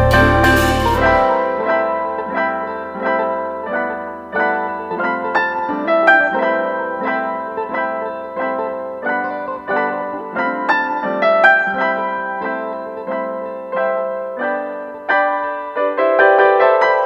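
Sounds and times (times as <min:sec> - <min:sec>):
low bass note: 0:00.0 - 0:02.0
piano notes and chords: 0:00.0 - 0:17.0.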